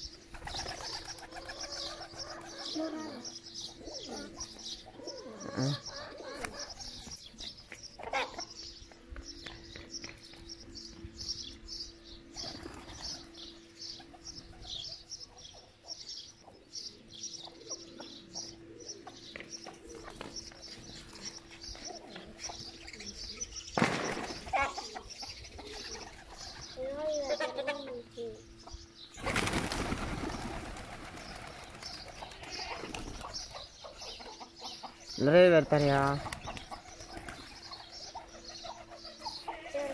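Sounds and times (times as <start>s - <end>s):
faint steady hum: 0.0s - 39.9s
pigeons cooing: 0.0s - 39.9s
wings flapping: 0.3s - 2.8s, 23.7s - 24.8s, 29.2s - 33.6s, 36.2s - 39.0s.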